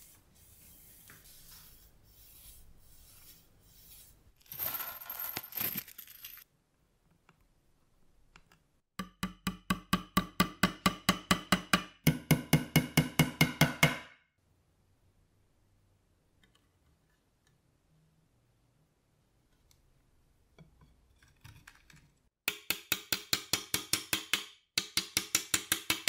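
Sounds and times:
hammer tapping metal tacks: 0:09.0 - 0:14.2, 0:22.4 - 0:26.0.

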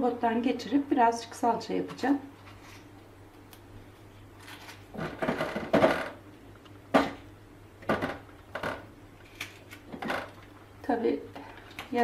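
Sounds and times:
vegetables clattering on metal tray: 0:04.4 - 0:06.2, 0:07.8 - 0:10.4.

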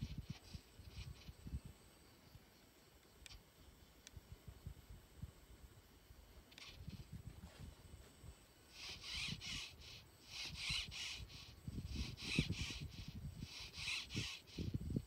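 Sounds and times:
bird harsh calls: 0:08.7 - 0:14.7.

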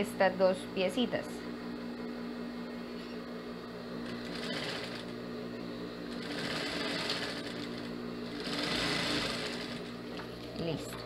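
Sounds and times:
motor hum: 0:00.0 - 0:11.0
sewing machine stitching: 0:04.0 - 0:05.1, 0:06.1 - 0:10.0.

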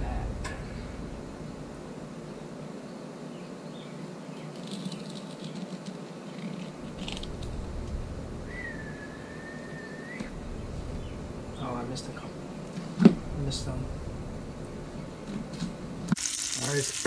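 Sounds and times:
steady background hiss: 0:00.0 - 0:17.0
high whistled note: 0:08.4 - 0:10.3.

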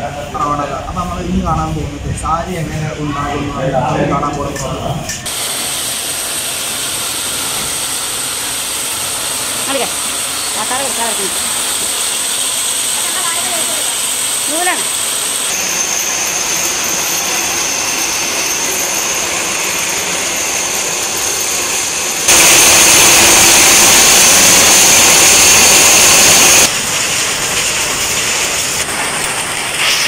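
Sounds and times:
power loom running: 0:05.2 - 0:30.0
thread winding machines: 0:06.8 - 0:26.7.

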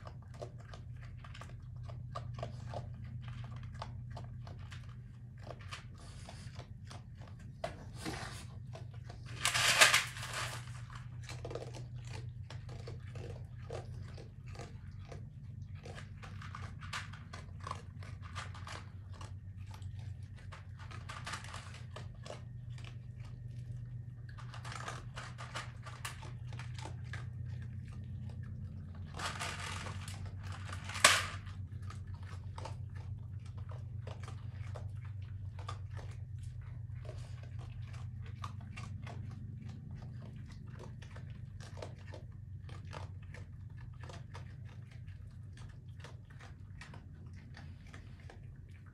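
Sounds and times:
raccoons crunching dry food: 0:00.0 - 0:48.9
steady low hum: 0:00.0 - 0:48.9.

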